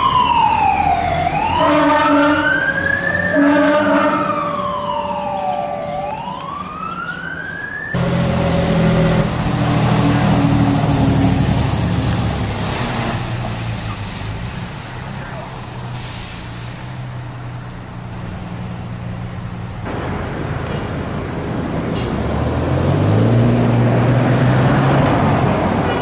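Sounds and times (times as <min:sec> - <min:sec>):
fire engine siren wailing: 0:00.0 - 0:16.2
fire truck engine and road noise: 0:00.0 - 0:26.0
low steady horn-like tone: 0:01.6 - 0:02.5, 0:03.3 - 0:04.3.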